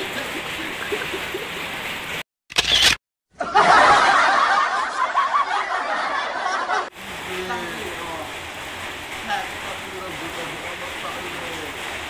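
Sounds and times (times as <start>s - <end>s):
snickering laughter: 0.0s - 1.8s
camera shutter click: 2.5s - 3.0s.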